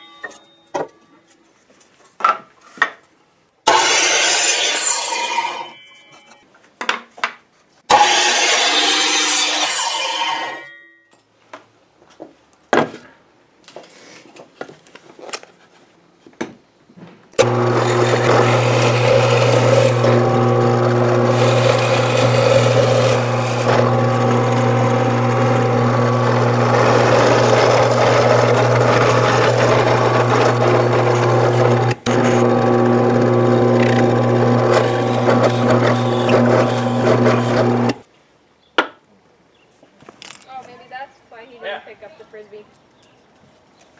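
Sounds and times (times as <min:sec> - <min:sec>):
drill bit boring into wood: 0:17.4 - 0:38.0
drill press motor humming: 0:17.4 - 0:38.0.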